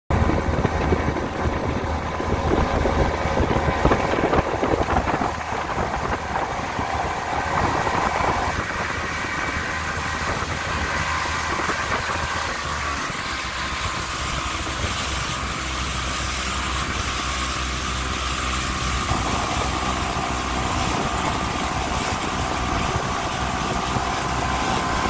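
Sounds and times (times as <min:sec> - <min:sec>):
outboard motor running: 0:00.1 - 0:25.0
wind noise on microphone: 0:00.1 - 0:25.0.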